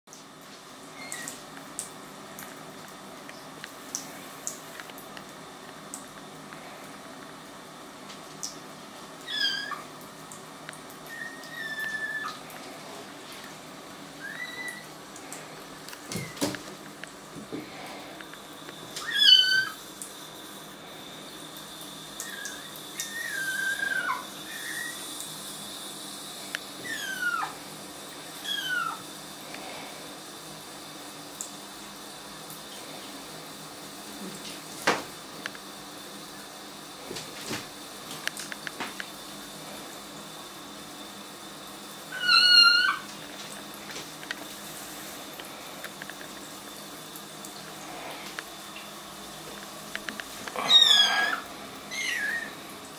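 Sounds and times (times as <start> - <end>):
kittens meowing: 19.0 - 19.8, 22.3 - 25.0, 26.8 - 27.6, 28.4 - 29.0, 42.2 - 43.1, 50.5 - 52.6.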